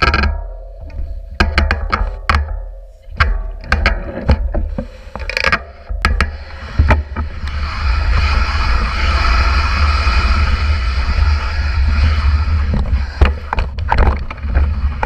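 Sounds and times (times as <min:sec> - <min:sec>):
bike clicks and knocks: 0:00.0 - 0:07.7, 0:12.7 - 0:15.0
wind rumbling on microphone: 0:03.2 - 0:15.0.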